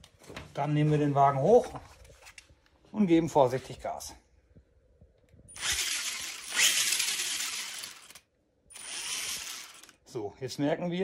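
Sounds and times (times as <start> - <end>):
electric motor spinning wheels: 5.5 - 10.0.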